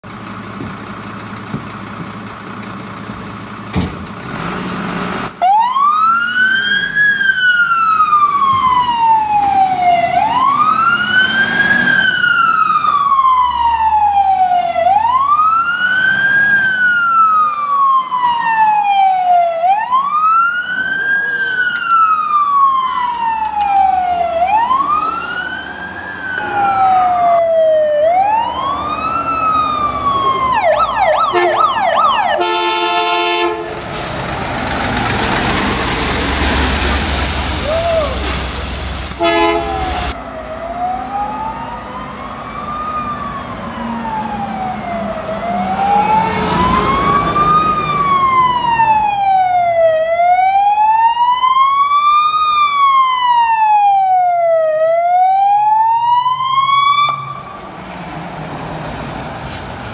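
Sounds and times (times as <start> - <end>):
truck engine running: 0.0 - 5.4, 28.0 - 40.2
fire engine wail siren: 5.2 - 59.9.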